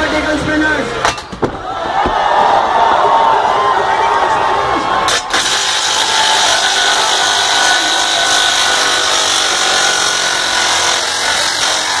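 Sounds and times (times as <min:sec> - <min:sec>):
robot motors whining: 0:05.0 - 0:12.0.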